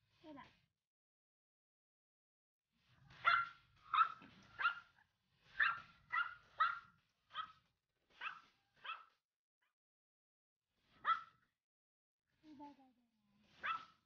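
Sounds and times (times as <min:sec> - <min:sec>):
puppy barking: 0:03.2 - 0:09.2, 0:11.0 - 0:11.4, 0:13.6 - 0:14.0.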